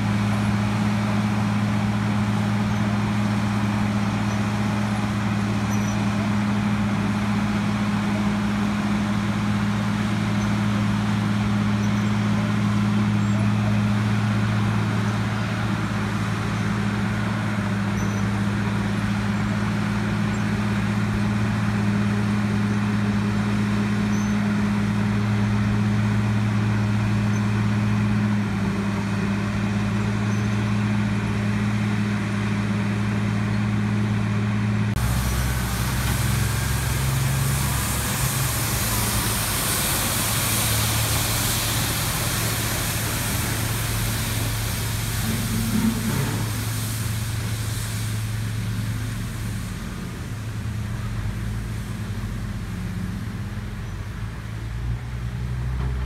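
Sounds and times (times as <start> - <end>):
milling machine diesel drone: 0.0 - 56.0
street sweeper truck engine: 0.0 - 56.0
sweeper brooms hissing: 35.0 - 52.4.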